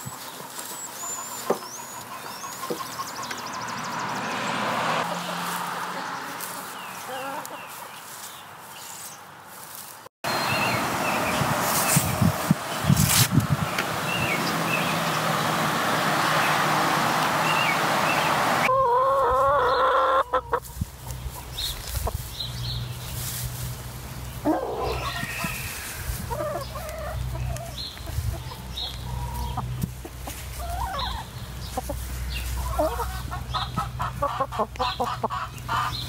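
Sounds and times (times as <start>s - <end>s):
hens clucking: 0.0s - 3.8s, 4.8s - 8.2s, 13.8s - 22.4s, 23.1s - 36.0s.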